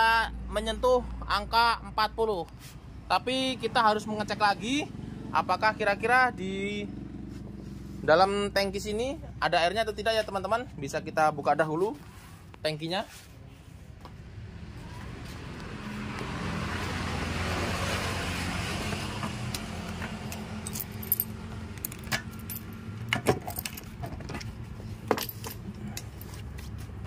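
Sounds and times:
engine humming: 14.1 - 27.0
keys jangling: 20.3 - 24.5, 25.1 - 26.4
metallic lock clicks: 21.8 - 24.0.

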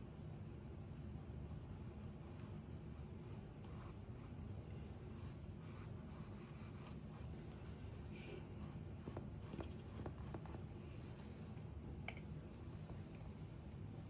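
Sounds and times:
paintbrush brushing on canvas: 12.2 - 14.0.

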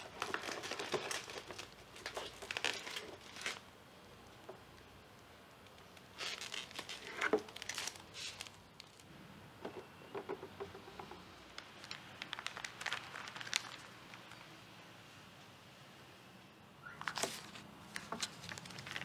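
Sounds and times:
plastic bag crinkling: 0.0 - 3.7, 5.6 - 9.1, 11.5 - 14.6, 17.0 - 19.0
wrapping rustling and crinkling: 0.0 - 4.9, 5.5 - 9.1, 11.4 - 14.6, 16.9 - 19.0.

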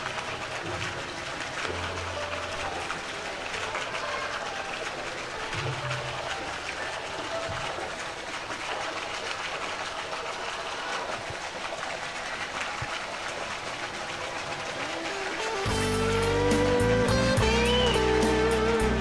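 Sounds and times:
outdoor background noise: 0.0 - 19.0
music with strong low beat: 15.7 - 19.0.

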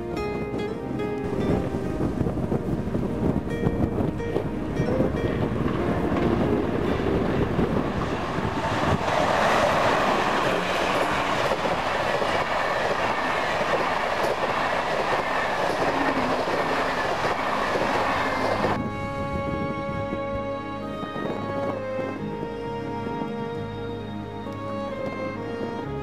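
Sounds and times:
music: 0.0 - 11.8, 17.1 - 26.0
passenger train rolling past: 0.0 - 26.0.

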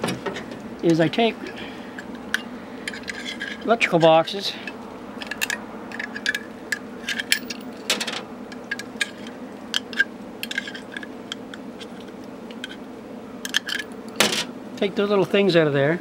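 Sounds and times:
steady low hum: 0.0 - 16.0
metal slugs clicking and clinking: 2.0 - 12.8.

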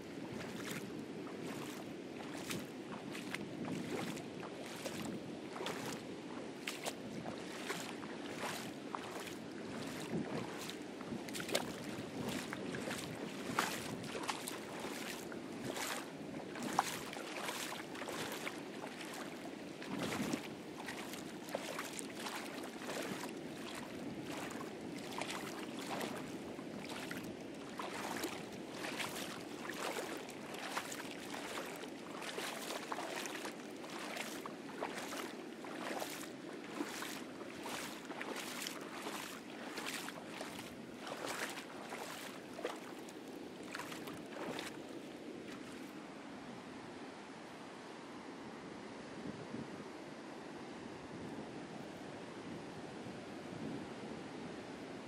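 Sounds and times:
water splashing around wading feet: 0.0 - 46.0.

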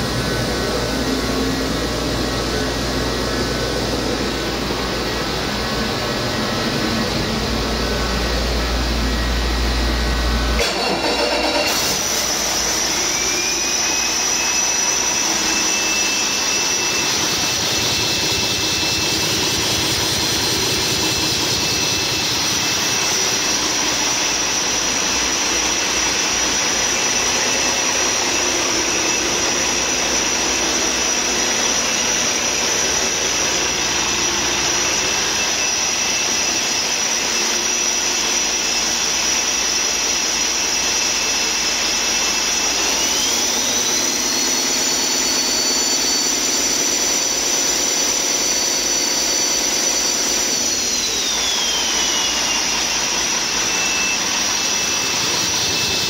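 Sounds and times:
diesel engine running: 0.0 - 40.4
high whine: 0.0 - 56.0.

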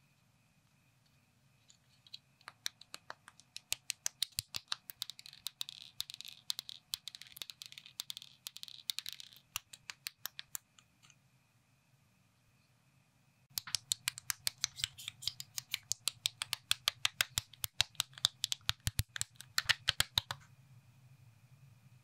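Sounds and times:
plastic bricks clicking: 2.1 - 11.2, 13.5 - 20.4.

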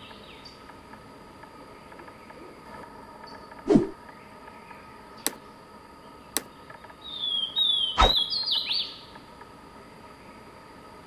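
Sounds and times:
bird whistling song: 7.0 - 9.0.

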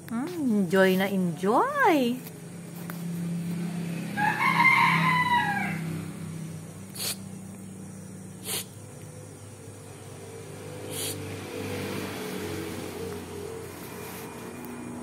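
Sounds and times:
rooster crowing: 3.7 - 6.5
steady low hum: 5.7 - 15.0.

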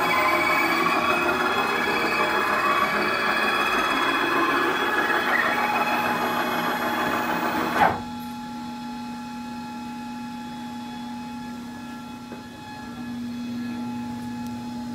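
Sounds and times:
stepper motors whirring: 0.0 - 8.0
steady hum with whine: 0.0 - 14.9.

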